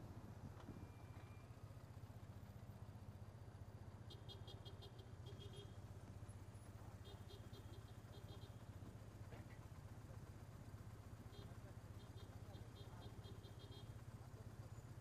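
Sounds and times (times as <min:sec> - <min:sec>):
faint motorcycle engine idling: 0:00.0 - 0:15.0.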